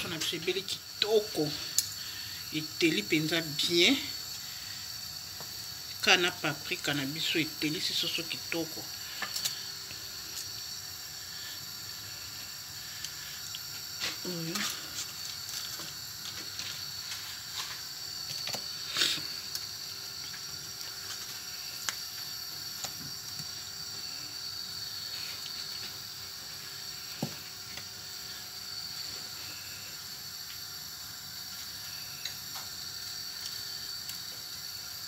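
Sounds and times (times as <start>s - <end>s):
steady hiss: 0.0s - 35.0s.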